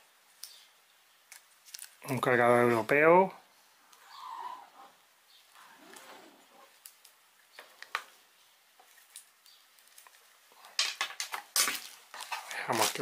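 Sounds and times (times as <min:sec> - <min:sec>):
plastic crinkling: 0:01.3 - 0:02.0.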